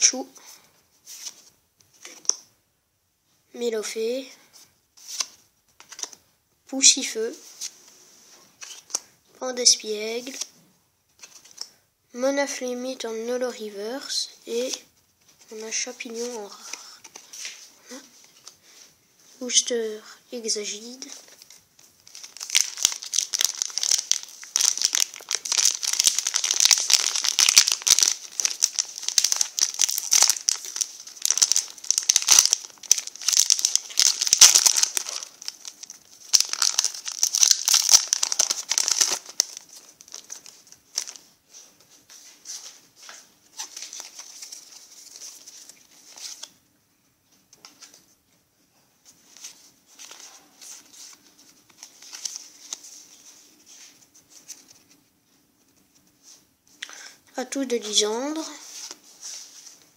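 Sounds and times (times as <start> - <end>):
foil pack crinkling and tearing: 22.1 - 41.2.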